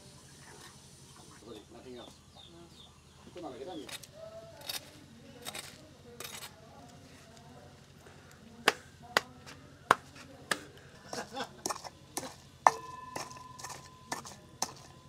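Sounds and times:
pestle pounding in metal mortar: 11.2 - 15.0
metal bowl ringing: 12.6 - 15.0.

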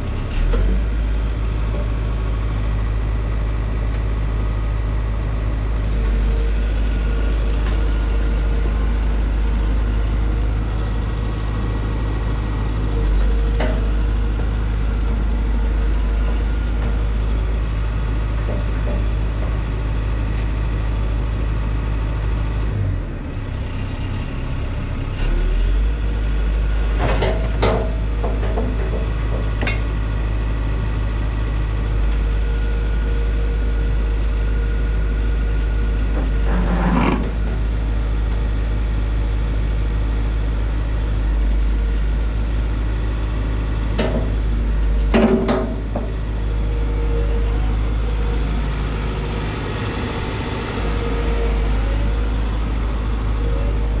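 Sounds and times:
hydraulics working: 0.0 - 21.3, 35.7 - 38.6, 40.6 - 54.0
diesel engine running: 0.0 - 54.0.

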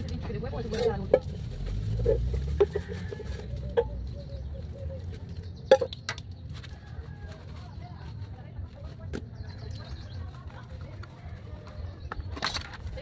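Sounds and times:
chickens clucking: 2.0 - 6.2.

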